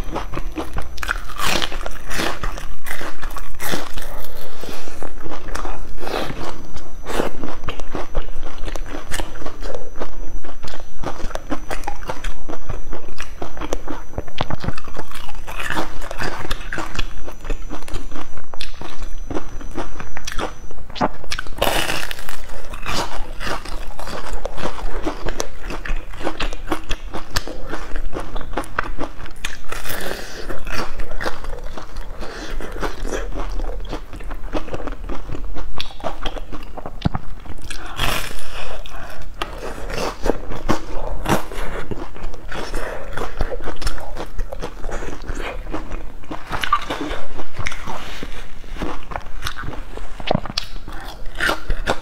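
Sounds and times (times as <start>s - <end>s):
crunching and chewing crispy food: 0.0s - 52.0s.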